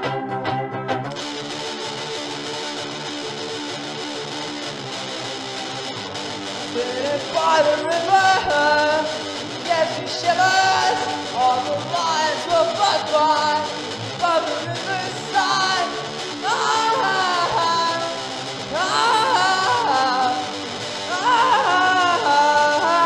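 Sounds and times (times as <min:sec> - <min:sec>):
strummed guitar: 0:00.0 - 0:23.0
person singing: 0:06.7 - 0:23.0.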